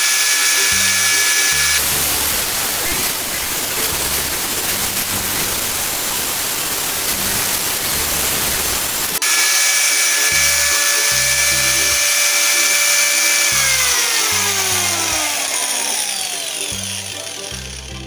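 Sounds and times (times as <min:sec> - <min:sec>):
angle grinder running: 0:00.0 - 0:18.0
background music with bass: 0:00.7 - 0:06.0, 0:13.5 - 0:18.0.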